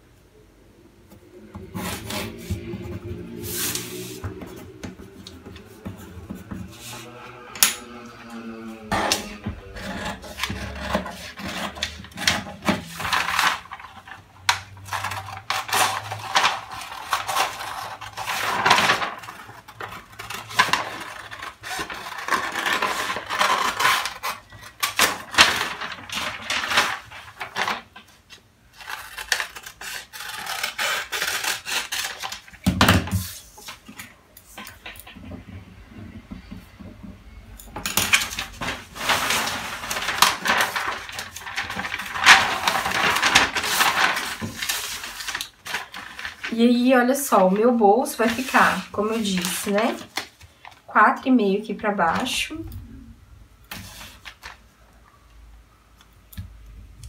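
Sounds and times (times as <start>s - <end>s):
scissors cutting paper: 1.8s - 27.7s, 28.8s - 33.8s
paper crinkling: 9.2s - 34.8s, 38.0s - 50.8s, 53.7s - 54.7s.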